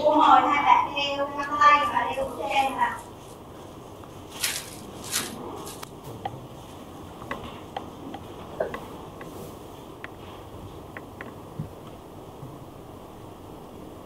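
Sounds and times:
packets crinkling: 4.3 - 5.9
faint clicks and taps: 7.2 - 9.4, 10.0 - 10.3, 10.9 - 12.0.

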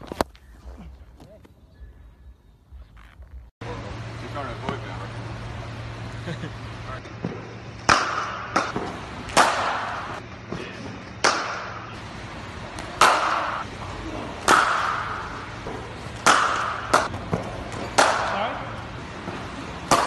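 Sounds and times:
cricket bats striking balls: 7.1 - 20.0.

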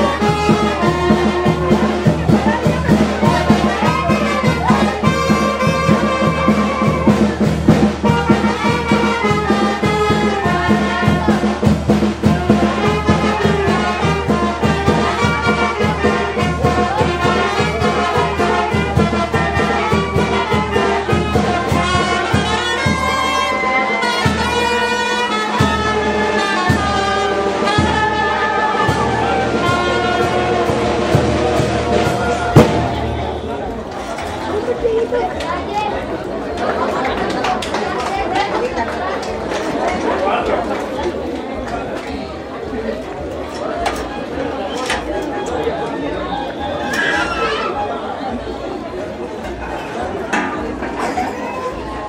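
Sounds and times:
brass band playing: 0.0 - 34.8.

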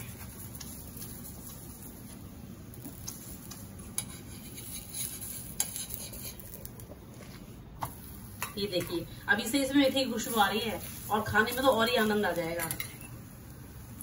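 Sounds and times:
metal spoon scraping griddle: 3.0 - 6.8.

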